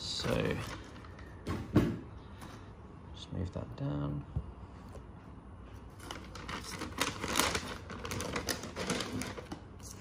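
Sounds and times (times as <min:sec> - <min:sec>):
packing paper rustling and crinkling: 0:00.0 - 0:01.4, 0:05.8 - 0:10.0.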